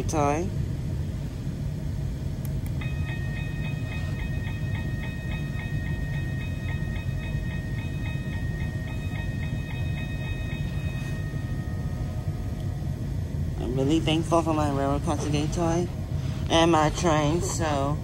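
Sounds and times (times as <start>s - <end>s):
toy crossing warning bell dinging: 2.8s - 13.0s.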